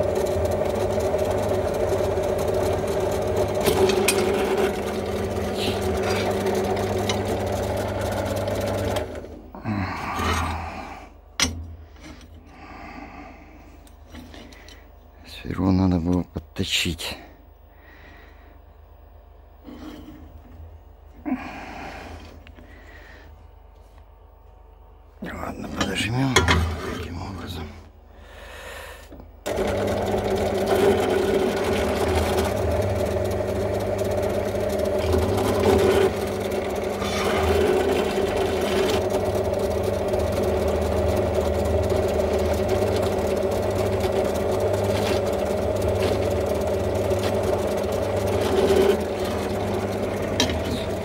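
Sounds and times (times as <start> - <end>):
drill press motor humming: 0.0 - 16.2, 28.6 - 51.0
drill bit cutting metal: 3.5 - 9.0, 34.4 - 51.0.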